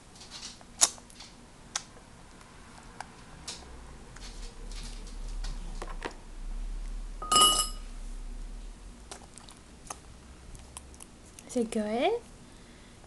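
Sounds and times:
loud ringing clink: 7.2 - 7.8.

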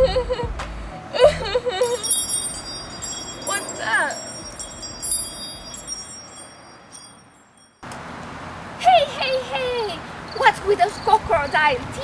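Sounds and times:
magic tinkling chimes: 1.8 - 7.8.

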